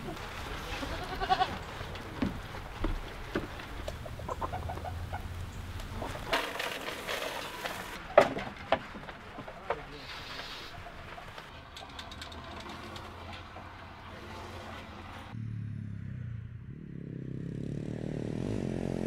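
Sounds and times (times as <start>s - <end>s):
goat bleating: 0.0s - 1.8s
chickens clucking: 0.0s - 15.3s.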